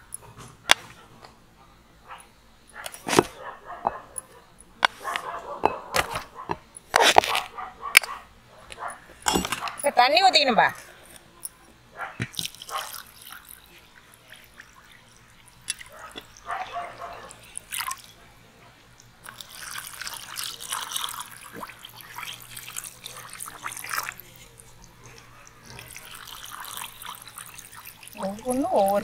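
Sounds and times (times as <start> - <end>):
water pouring into glass bowls: 12.3 - 18.2, 19.0 - 29.0.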